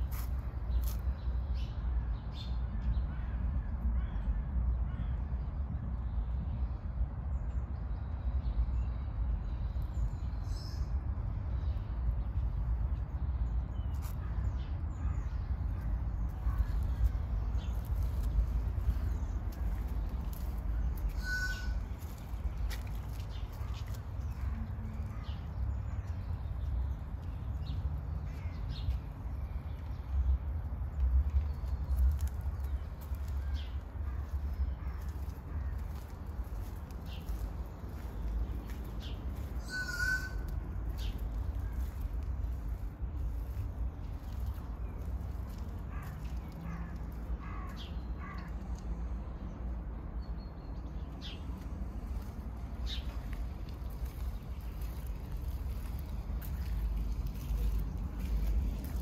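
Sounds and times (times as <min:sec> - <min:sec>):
wind rumble on microphone: 0:01.8 - 0:46.8
faint bird calls: 0:20.8 - 0:22.2, 0:39.6 - 0:41.8
parrot calling: 0:39.6 - 0:40.5.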